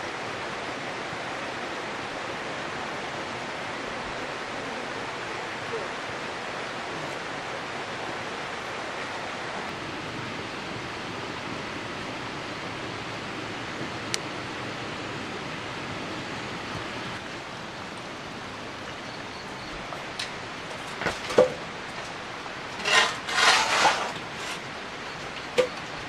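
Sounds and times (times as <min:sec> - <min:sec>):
running water rushing: 0:00.0 - 0:26.0
short scraping bursts: 0:22.8 - 0:24.6.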